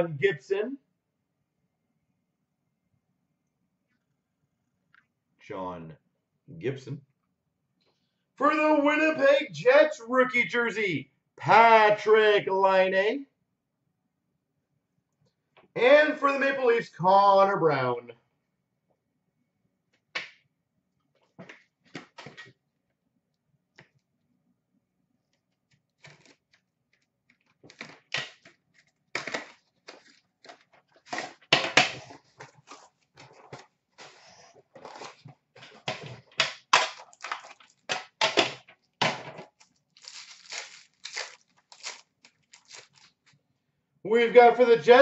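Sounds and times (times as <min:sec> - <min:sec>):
packaging clicks and rustles: 0:26.0 - 0:38.2, 0:39.5 - 0:43.3
plastic wrap crinkling: 0:27.4 - 0:35.9, 0:36.9 - 0:37.9, 0:39.5 - 0:43.4.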